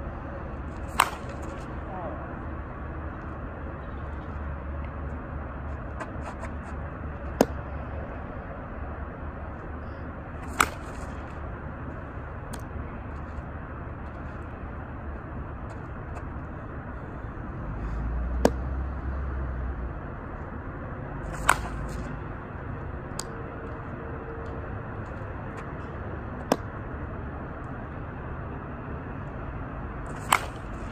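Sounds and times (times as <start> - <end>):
bat cracking softball: 0.6 - 1.8, 7.3 - 7.7, 10.2 - 11.4, 18.3 - 18.8, 21.2 - 22.2, 23.0 - 23.8, 25.0 - 26.8, 30.0 - 30.9.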